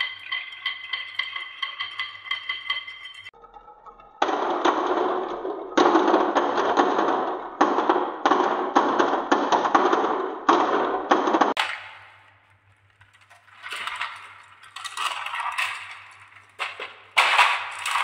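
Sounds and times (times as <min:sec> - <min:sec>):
marbles rolling down wooden track: 0:11.5 - 0:18.0.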